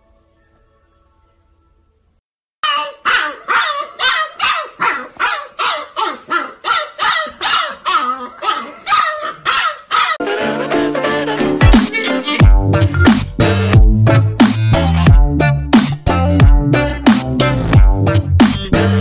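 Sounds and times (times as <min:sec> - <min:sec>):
music: 0:00.0 - 0:02.2, 0:10.2 - 0:19.0
puppy yapping barks: 0:02.6 - 0:10.2.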